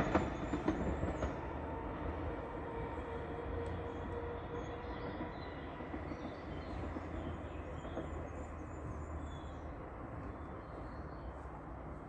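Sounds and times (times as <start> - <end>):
distant train rumbling: 0.0 - 12.0.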